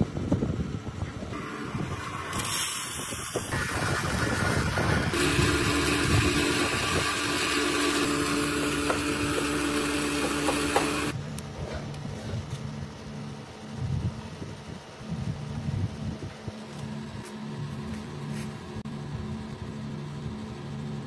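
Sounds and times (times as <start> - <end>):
flour mill grinding: 1.4 - 11.2.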